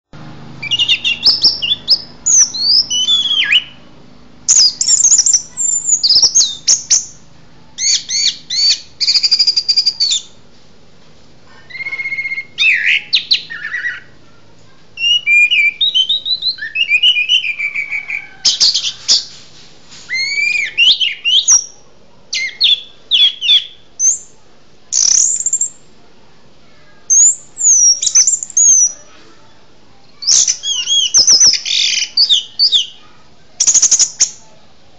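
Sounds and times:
songbird whistles and trills: 0:00.6 - 0:03.9, 0:04.5 - 0:07.2, 0:07.8 - 0:10.4, 0:11.7 - 0:14.2, 0:15.0 - 0:19.3, 0:20.1 - 0:25.8, 0:27.1 - 0:29.1, 0:30.1 - 0:34.5.

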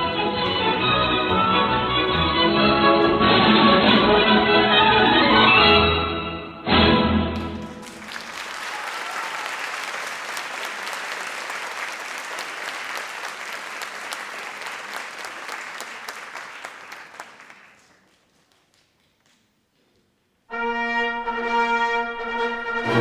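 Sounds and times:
audience applauding: 0:07.4 - 0:19.6.

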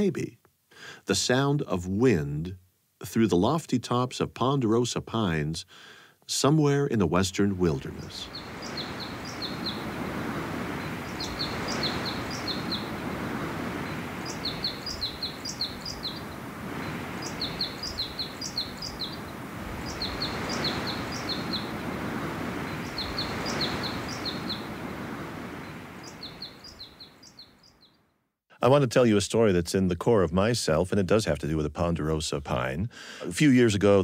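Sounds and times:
wind rushing through pines: 0:07.4 - 0:28.0
bird chirping: 0:07.6 - 0:28.1.

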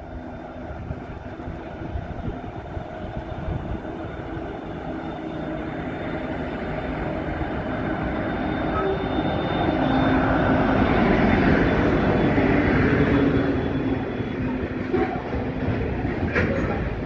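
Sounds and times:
locomotive engine drone: 0:00.0 - 0:17.0
train rumble: 0:00.0 - 0:17.0.

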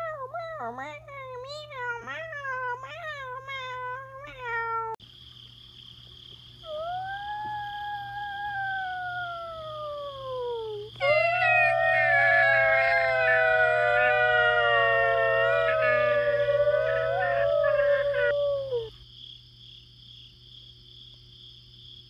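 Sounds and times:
cat meowing: 0:11.0 - 0:18.9
long cat yowl: 0:11.0 - 0:18.9.

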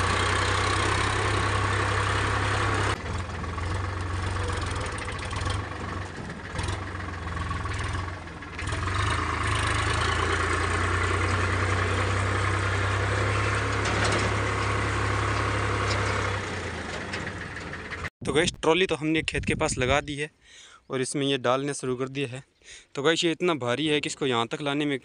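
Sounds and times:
tractor diesel engine droning: 0:00.0 - 0:18.1.

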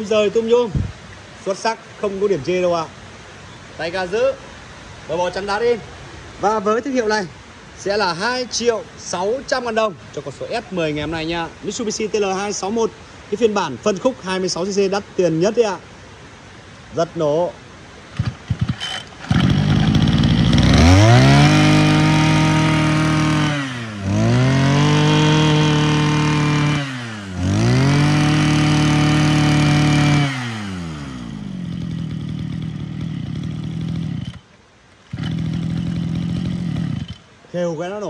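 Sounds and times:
brush cutter engine revving: 0:18.1 - 0:34.5, 0:35.1 - 0:37.3
recoil starter pull: 0:18.2 - 0:34.5, 0:35.1 - 0:37.3.

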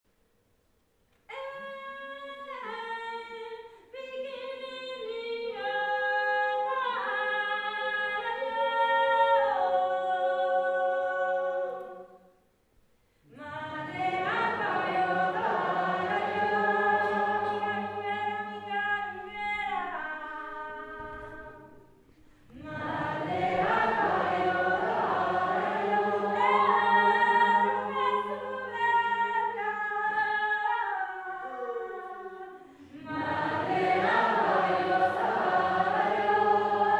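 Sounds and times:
group singing a cappella: 0:13.3 - 0:21.9, 0:22.5 - 0:36.9.

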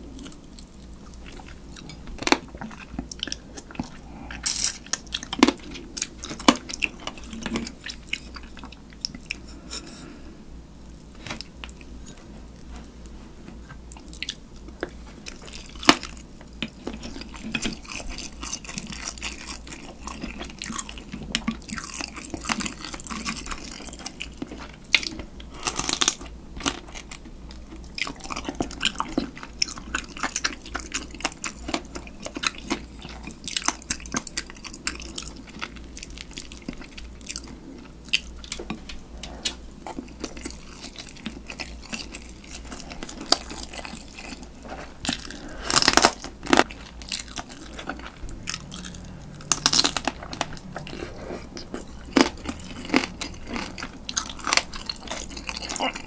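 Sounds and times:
wet chewing: 0:00.2 - 0:09.6, 0:13.8 - 0:56.0
crab shell crunching: 0:39.4 - 0:56.0.

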